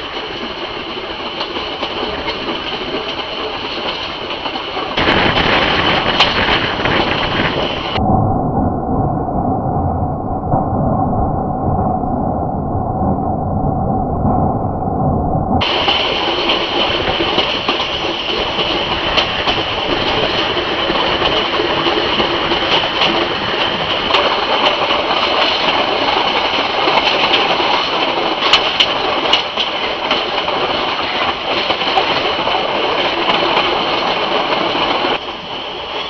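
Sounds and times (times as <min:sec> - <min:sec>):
sharp train clicks: 0:00.0 - 0:08.0, 0:15.6 - 0:36.0
train rattling rumble: 0:00.0 - 0:08.7, 0:10.4 - 0:36.0.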